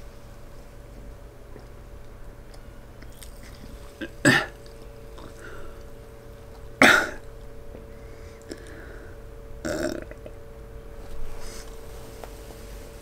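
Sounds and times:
faint steady hum: 0:00.0 - 0:13.0
man burping: 0:04.0 - 0:05.6, 0:06.8 - 0:07.3, 0:08.5 - 0:08.9, 0:09.6 - 0:10.4.

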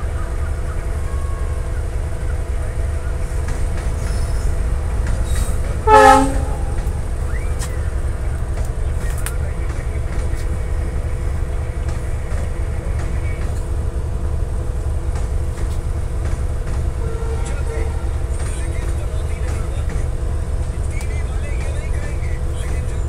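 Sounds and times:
train rolling past: 0:00.0 - 0:23.0
train horn blast: 0:05.8 - 0:07.0, 0:17.0 - 0:18.1.

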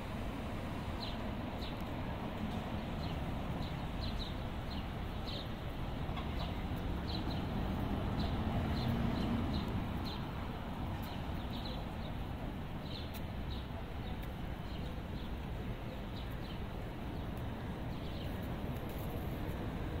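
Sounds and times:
distant traffic: 0:00.0 - 0:20.0
small birds chirping: 0:11.0 - 0:12.2, 0:12.8 - 0:19.2.

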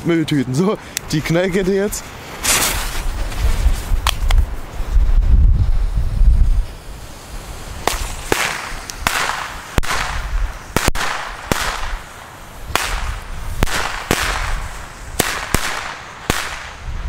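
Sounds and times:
firecracker bangs: 0:07.8 - 0:16.9.

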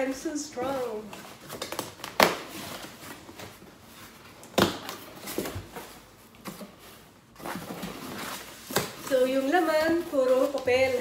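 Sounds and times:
sharp loud cardboard noise: 0:01.4 - 0:03.6
cardboard scrapes and knocks: 0:05.2 - 0:11.0.

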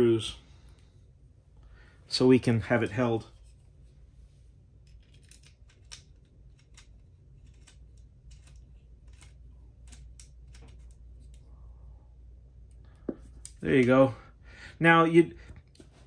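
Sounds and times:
small screw clicks and scrapes: 0:04.8 - 0:11.5.

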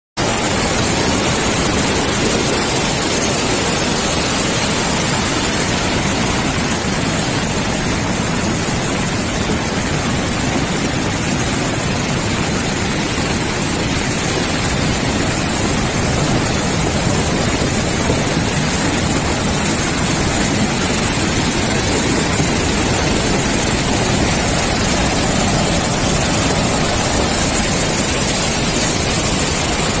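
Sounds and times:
river water rushing: 0:00.2 - 0:30.0.

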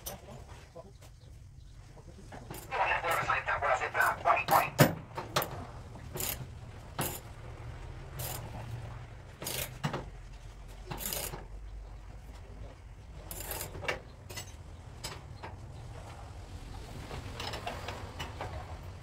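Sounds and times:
hand tools clinking on metal: 0:10.9 - 0:11.4, 0:13.2 - 0:15.2.

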